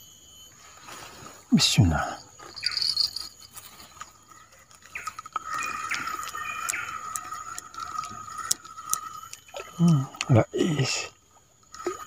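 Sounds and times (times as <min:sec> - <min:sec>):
reel clicking: 0:03.9 - 0:10.3
fishing reel being cranked: 0:04.2 - 0:09.8.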